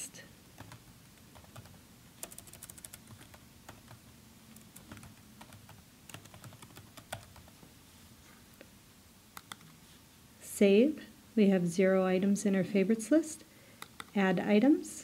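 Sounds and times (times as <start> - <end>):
keyboard keys clicking: 1.4 - 4.0, 4.8 - 7.5.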